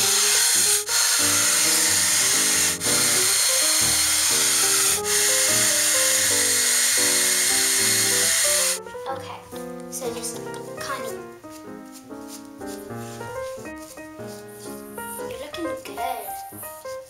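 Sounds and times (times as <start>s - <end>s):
hair dryer running: 0.0s - 8.8s
background music melody: 0.0s - 17.0s.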